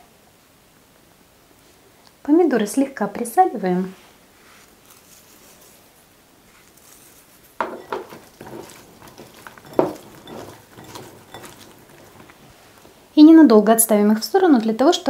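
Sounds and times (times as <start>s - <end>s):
rustling: 3.9s - 13.2s
slices knocking against glass bowl: 7.6s - 12.5s.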